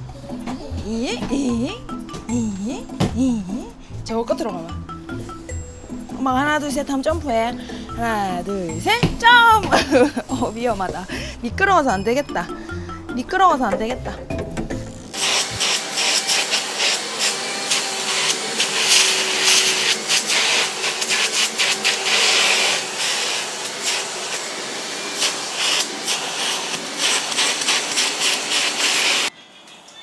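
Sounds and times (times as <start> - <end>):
vacuum cleaner suction hum: 15.0 - 29.3.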